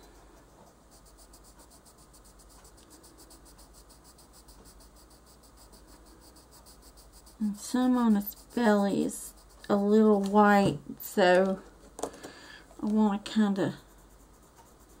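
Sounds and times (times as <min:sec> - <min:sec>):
pencil scratching on paper: 0:00.0 - 0:11.2, 0:12.9 - 0:15.0
fast high-pitched pulsing: 0:00.8 - 0:10.2.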